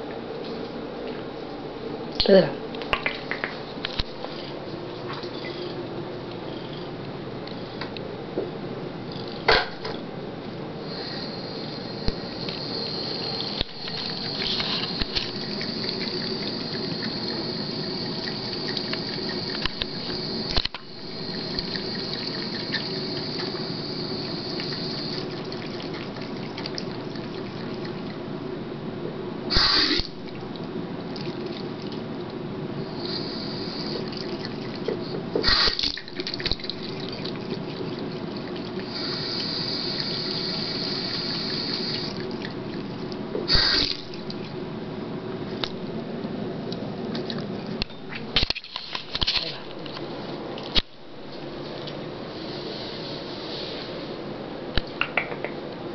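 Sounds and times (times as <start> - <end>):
faucet running into sink: 10.9 - 28.0.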